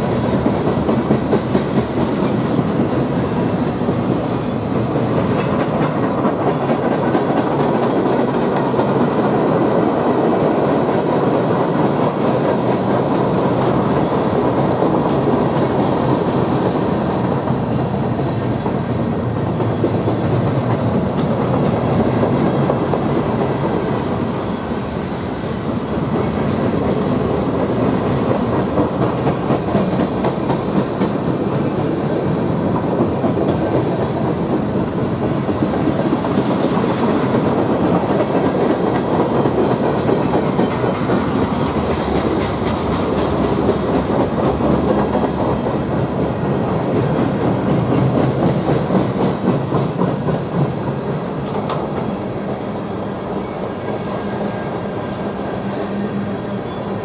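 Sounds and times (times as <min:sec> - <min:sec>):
freight train wheels clattering: 0:00.0 - 0:54.9.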